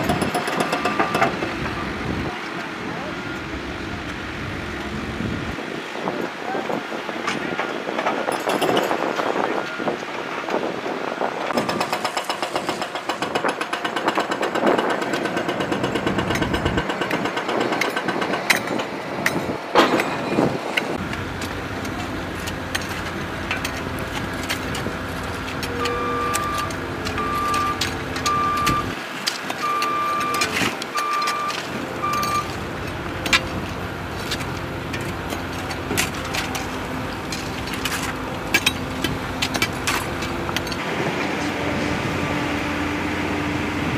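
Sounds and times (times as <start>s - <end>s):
diesel engine running: 0.0s - 7.6s, 14.5s - 43.9s
shovels scraping gravel: 21.2s - 40.8s
short beeps: 25.7s - 28.9s, 29.6s - 32.5s.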